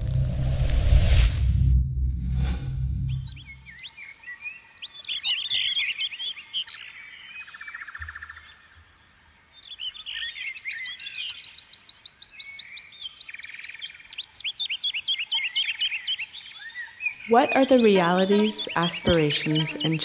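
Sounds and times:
songbirds chirping: 3.3s - 20.0s.

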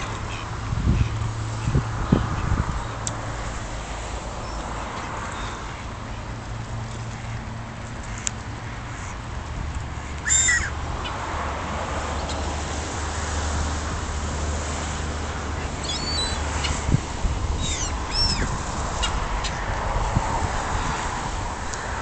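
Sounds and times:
gulls calling: 10.0s - 11.2s, 15.3s - 19.8s.

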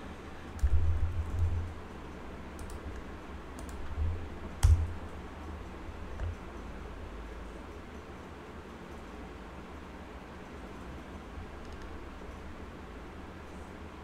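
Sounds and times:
keyboard and mouse clicks: 2.6s - 4.0s, 4.6s - 5.0s, 11.6s - 12.0s.

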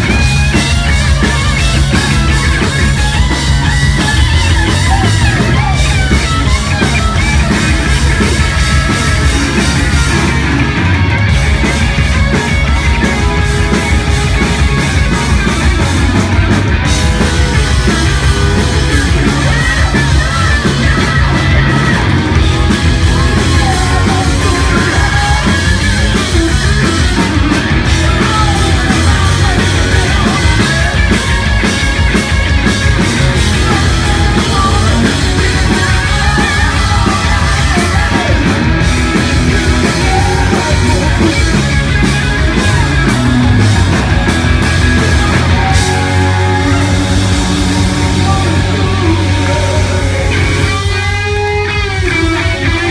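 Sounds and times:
person singing lead vocals: 0.0s - 10.8s, 16.9s - 51.7s
distorted electric guitars: 0.0s - 52.9s
drum kit: 0.0s - 52.9s.

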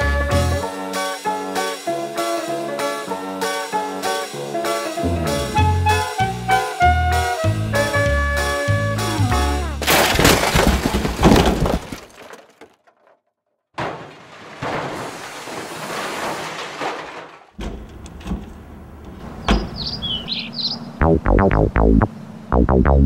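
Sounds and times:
plastic bin clattering and scraping: 9.8s - 13.2s, 13.8s - 19.7s
bird chirps: 19.3s - 22.6s.

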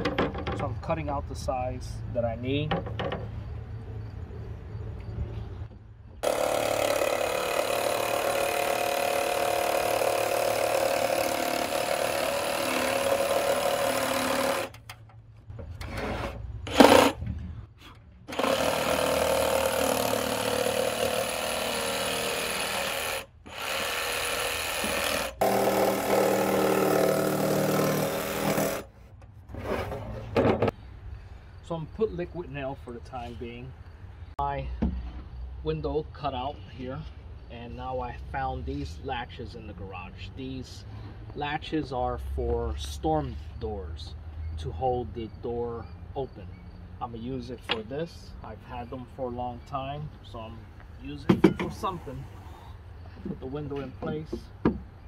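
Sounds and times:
power saw cutting wood: 6.2s - 14.8s, 15.8s - 17.2s, 18.3s - 28.9s.

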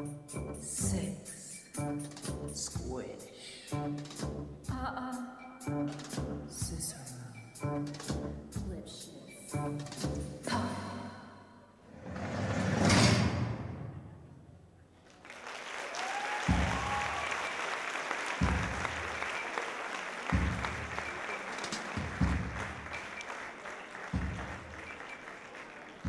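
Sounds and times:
audience applauding: 15.0s - 26.0s.

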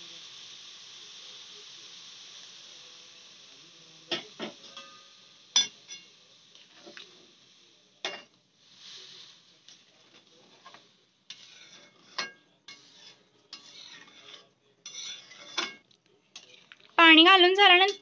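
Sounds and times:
metal clinks on pan: 4.1s - 6.1s
metal ladle scraping wok: 9.2s - 15.8s.

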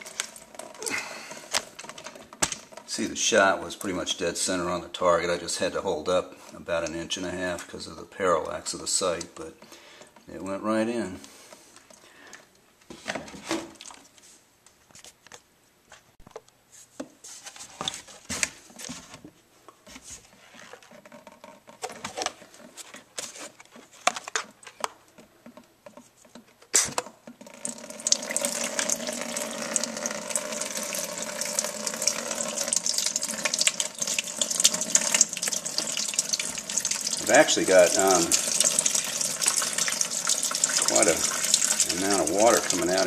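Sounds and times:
water pouring from plastic jug: 0.0s - 4.6s, 27.4s - 43.0s
cloth and plastic rustling: 12.8s - 26.9s.

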